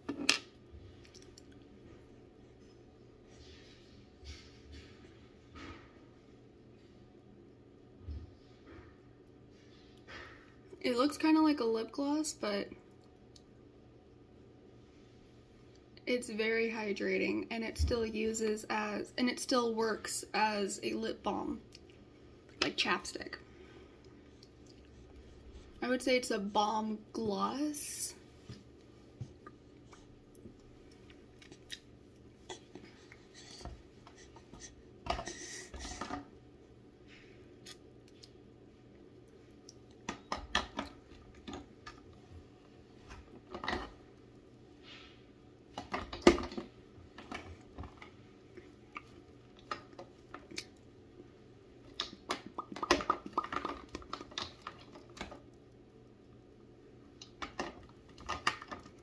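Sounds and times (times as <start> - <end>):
faint steady hum: 0.0 - 59.0.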